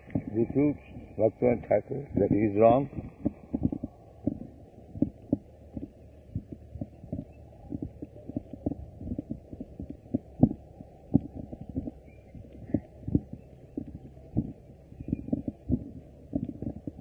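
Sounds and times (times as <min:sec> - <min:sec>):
footsteps of people walking: 0:02.2 - 0:17.0.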